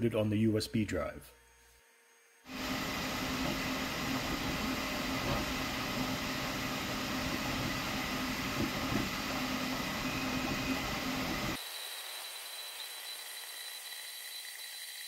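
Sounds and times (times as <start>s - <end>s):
printer head mechanical whir: 2.5s - 11.6s.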